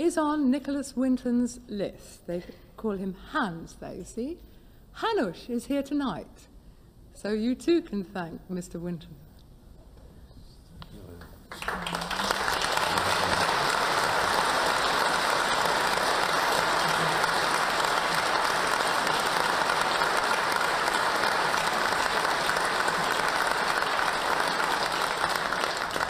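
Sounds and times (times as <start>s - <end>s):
studio audience applause: 11.5s - 26.0s.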